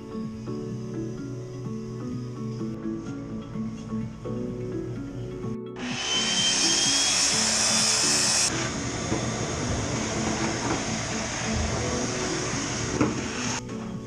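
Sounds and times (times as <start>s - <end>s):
background music: 0.0s - 14.0s
shop vacuum hissing: 5.8s - 13.6s.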